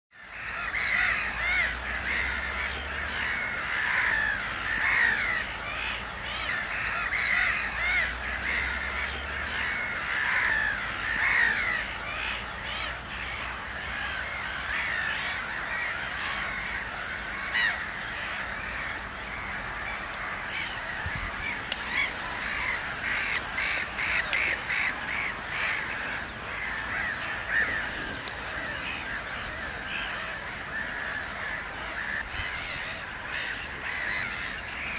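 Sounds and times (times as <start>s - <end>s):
chorus of animal calls: 0.2s - 34.9s.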